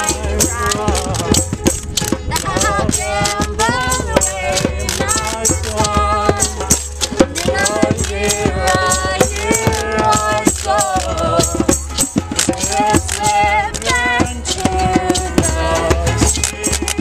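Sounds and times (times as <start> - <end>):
washboard scraped rhythmically: 0.0 - 11.3
hand drums: 0.0 - 17.0
people singing: 0.0 - 17.0
ukuleles strummed: 0.0 - 17.0.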